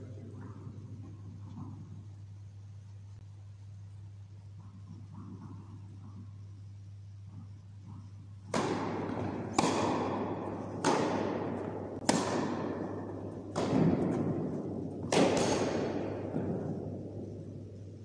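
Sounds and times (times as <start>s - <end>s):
steady low hum: 0.0s - 18.0s
tennis ball hit by racquets: 7.8s - 17.8s.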